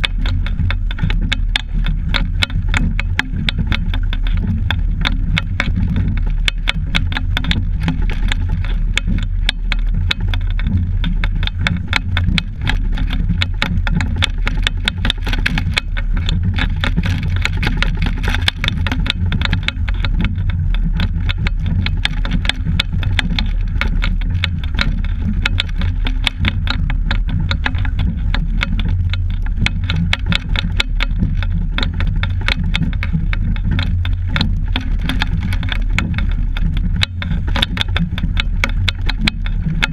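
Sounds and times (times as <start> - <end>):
clicking and rattling of mount: 0.0 - 39.9
wind buffeting microphone: 0.0 - 39.9.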